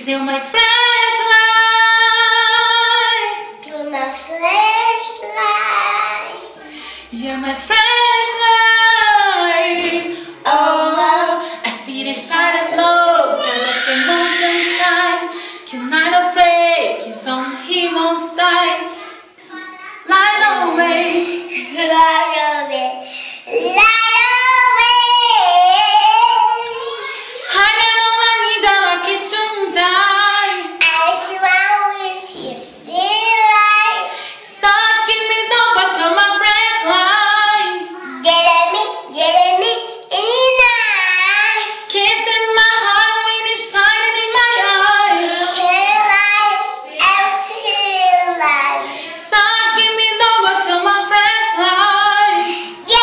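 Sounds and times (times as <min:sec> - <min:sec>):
girl singing: 0:00.0 - 0:53.0.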